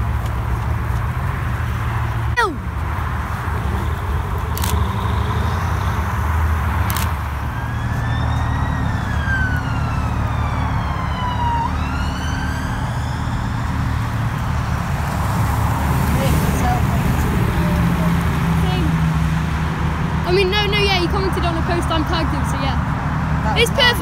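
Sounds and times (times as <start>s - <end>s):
car engine rumbling: 0.0s - 11.6s
high siren-like whine: 7.2s - 14.2s.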